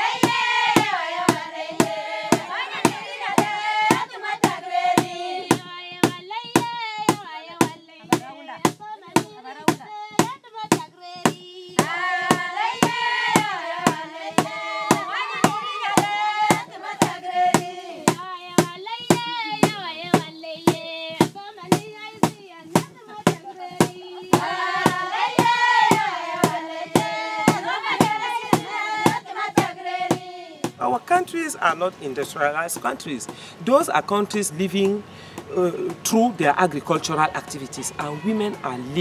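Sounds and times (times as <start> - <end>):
voices singing a melody: 0.0 - 33.8
hand claps beat: 0.2 - 30.8.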